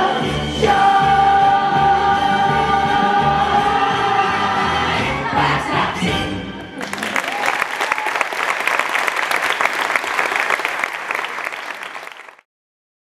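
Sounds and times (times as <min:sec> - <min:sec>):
applause: 0:06.8 - 0:12.5.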